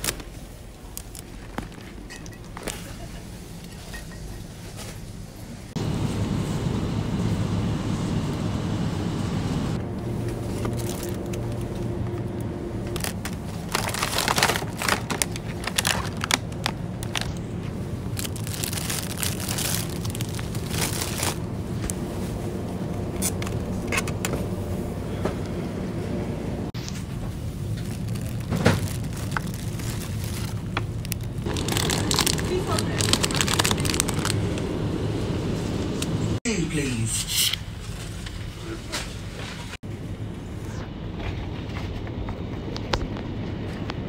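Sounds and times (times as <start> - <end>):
plastic packaging crinkling: 0.0 - 2.1, 10.4 - 11.8, 12.8 - 21.5, 26.8 - 34.6
steady low hum: 5.2 - 36.4.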